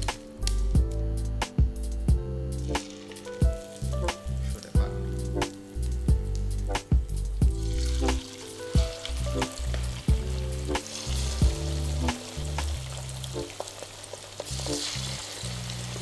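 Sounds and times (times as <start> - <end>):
background music with steady beat: 0.0 - 16.0
chicken frying in hot oil: 7.4 - 16.0.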